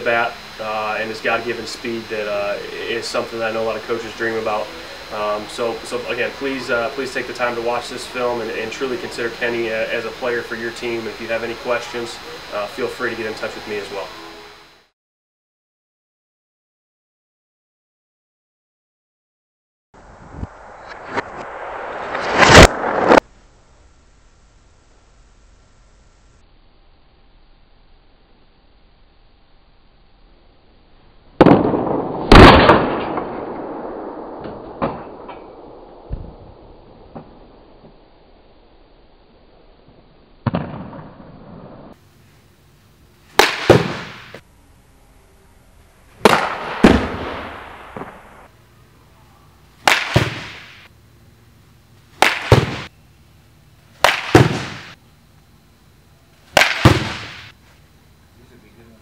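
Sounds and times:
bat hitting ball with echo: 0:43.4 - 0:44.4, 0:49.8 - 0:50.8, 0:52.2 - 0:52.9, 0:54.0 - 0:55.0, 0:56.6 - 0:57.5.

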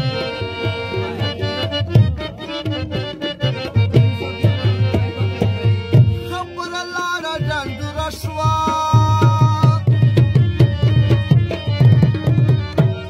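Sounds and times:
hand drum beating: 0:00.0 - 0:13.0
harmonium chords: 0:00.0 - 0:13.0
man singing: 0:03.5 - 0:11.6.

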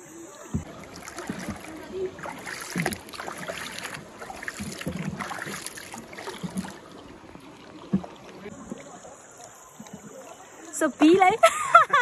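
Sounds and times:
water sloshing around boat: 0:00.4 - 0:12.0
knocks on boat: 0:00.5 - 0:06.8.

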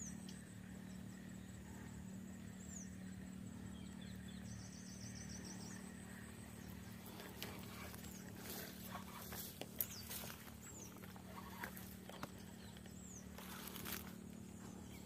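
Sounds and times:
birds calling: 0:00.0 - 0:15.0
steady low hum: 0:00.0 - 0:15.0
brief rustles and clicks: 0:07.2 - 0:14.2.

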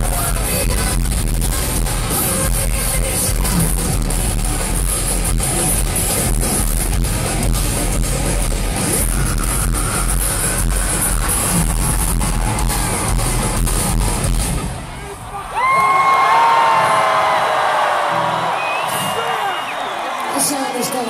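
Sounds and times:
steady drum beat: 0:00.0 - 0:14.7
distorted electric guitars: 0:00.0 - 0:15.0.

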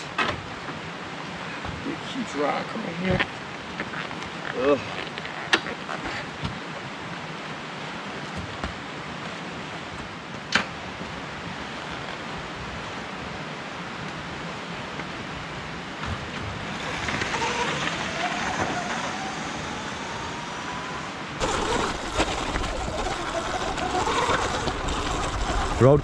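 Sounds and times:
steady wind hiss: 0:00.0 - 0:26.0.

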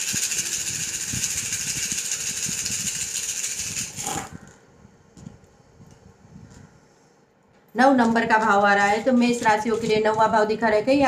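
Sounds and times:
shells rattling in hands: 0:00.0 - 0:04.0.

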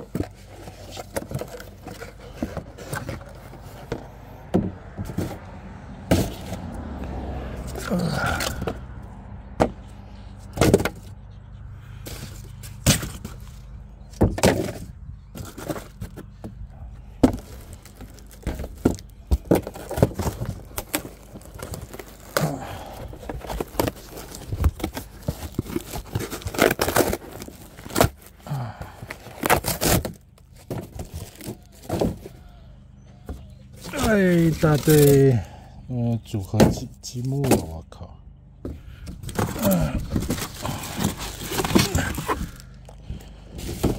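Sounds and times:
hard pieces knocking and scraping: 0:10.5 - 0:11.1, 0:12.1 - 0:16.6, 0:17.2 - 0:22.4, 0:38.7 - 0:43.9.

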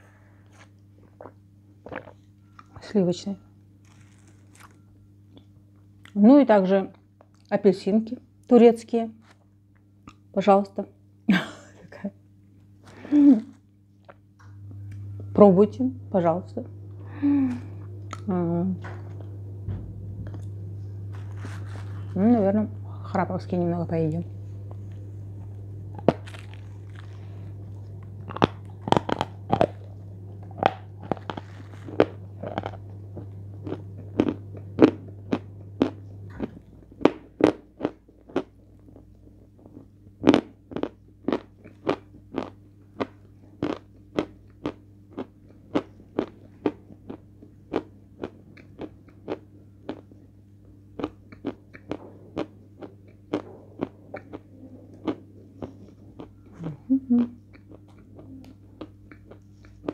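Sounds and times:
chalk crunching while chewed: 0:00.4 - 0:02.7, 0:03.8 - 0:04.8, 0:21.1 - 0:22.2, 0:24.7 - 0:50.3, 0:51.0 - 0:56.8, 0:57.5 - 0:59.9.

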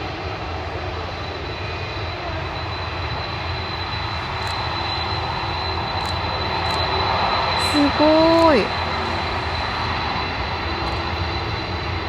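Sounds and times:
jet engines rumbling: 0:00.0 - 0:12.0
thin high tone: 0:02.9 - 0:11.8.

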